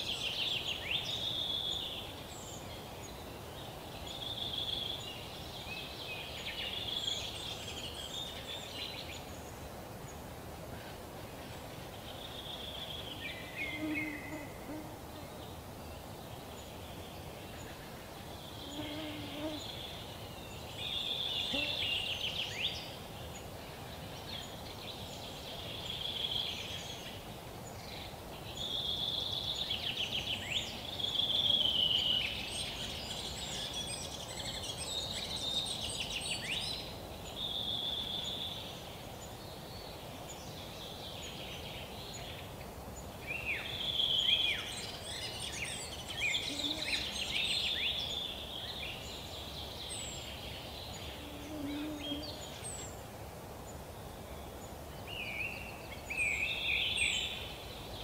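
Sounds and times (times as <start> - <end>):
birds chirping: 43.1 - 53.0.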